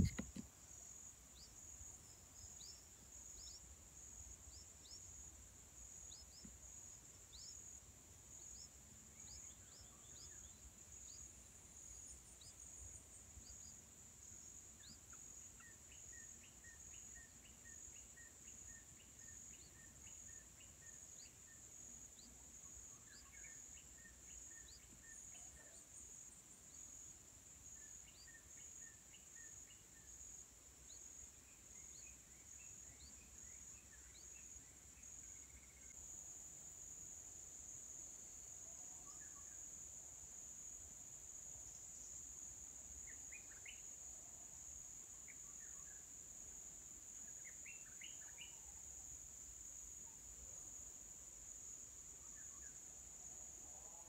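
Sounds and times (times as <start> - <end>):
short bird chirps: 0.0 - 0.4.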